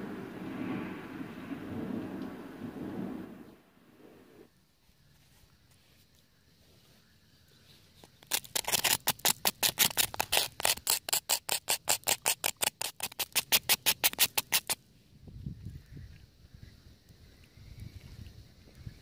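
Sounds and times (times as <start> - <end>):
knife scraping burnt surface: 8.1 - 14.8.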